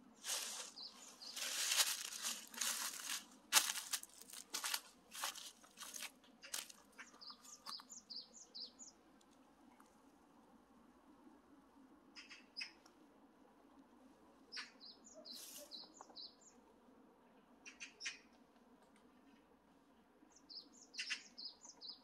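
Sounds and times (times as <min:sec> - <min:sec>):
footsteps crunching dry leaves: 0:00.2 - 0:07.6.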